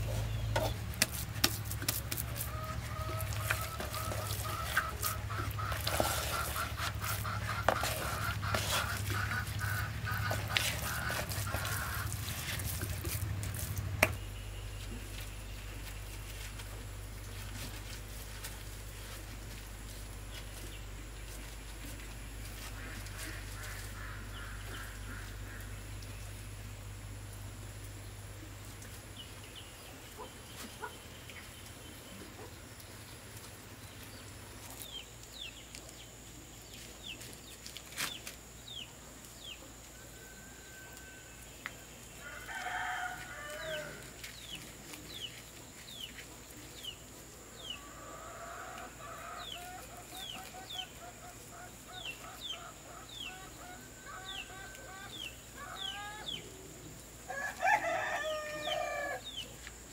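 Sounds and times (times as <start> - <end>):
chickens clucking: 0.0 - 14.2, 42.6 - 56.9
rooster crowing: 42.2 - 44.1, 57.3 - 59.3.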